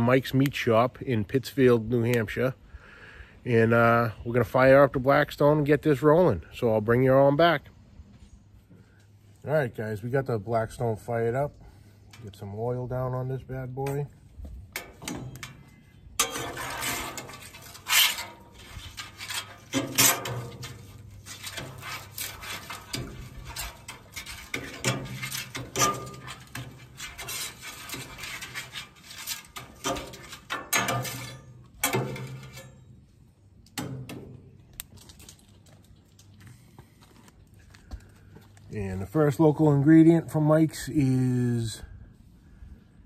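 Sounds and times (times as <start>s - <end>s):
metal spatula scraping griddle: 14.8s - 33.0s.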